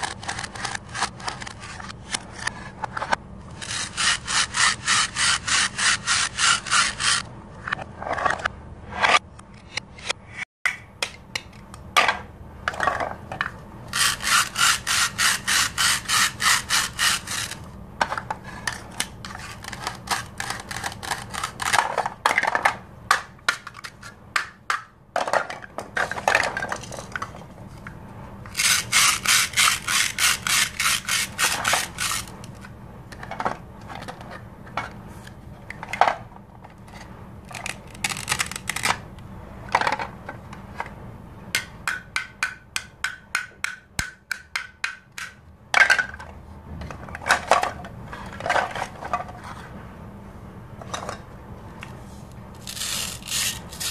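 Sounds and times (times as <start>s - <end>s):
toy knife rasping hook-and-loop: 3.6s - 7.2s, 13.9s - 17.6s, 19.3s - 21.8s, 28.5s - 32.4s, 52.6s - 53.9s.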